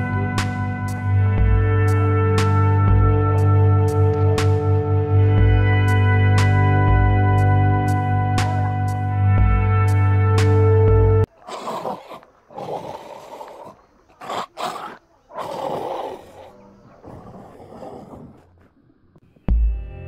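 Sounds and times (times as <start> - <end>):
background music: 0.0 - 11.3, 19.5 - 20.0
tiger roaring: 11.3 - 18.8.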